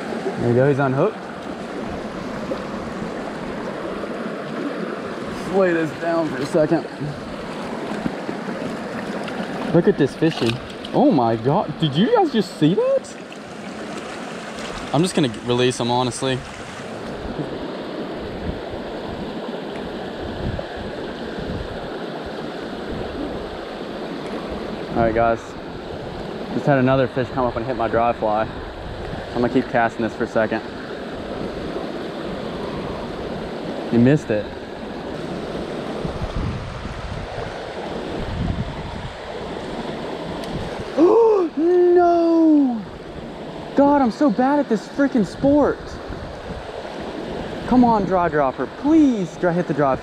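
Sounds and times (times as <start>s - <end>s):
low water bumps: 0.0s - 12.2s, 12.8s - 22.0s
underwater creek rushing: 0.0s - 50.0s
man groaning: 40.9s - 42.9s.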